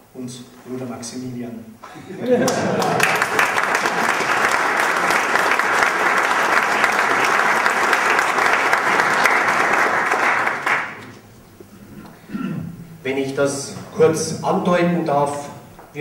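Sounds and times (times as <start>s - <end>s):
audience applauding: 2.2s - 11.2s.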